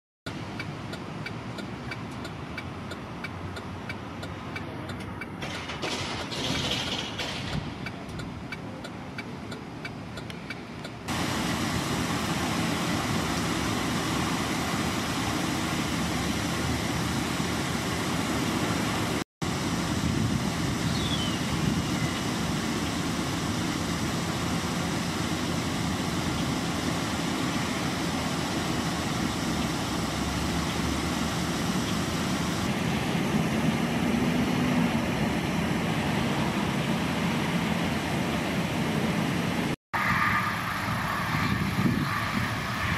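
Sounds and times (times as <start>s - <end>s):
road traffic noise: 0.3s - 42.9s
vehicle engine rising: 11.0s - 42.9s.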